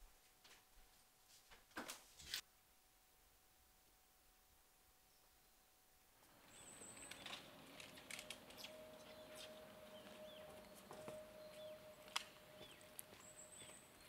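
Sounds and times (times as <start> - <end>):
small birds chirping: 5.0 - 14.0
footsteps on metal steps: 7.1 - 14.0.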